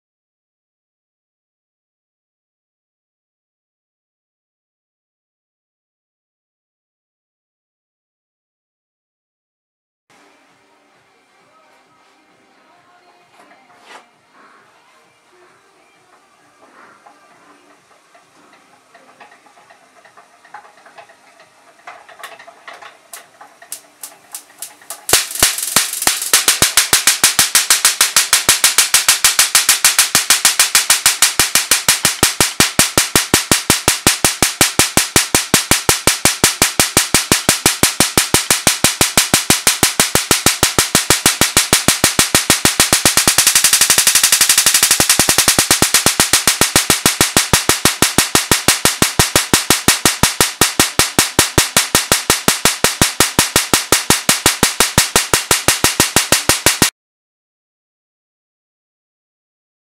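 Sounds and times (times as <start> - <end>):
electric spark cracking snaps: 18.3 - 56.9.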